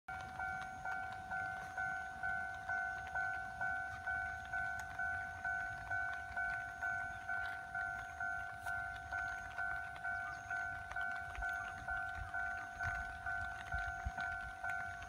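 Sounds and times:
level crossing bell ringing: 0.1 - 15.0.

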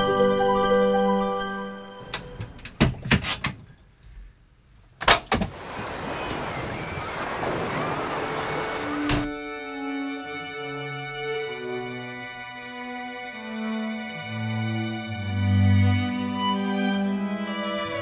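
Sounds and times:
wind: 2.0 - 12.4
car door latch and clunk: 5.0 - 5.6, 8.9 - 9.4
sea surf: 5.3 - 9.5.

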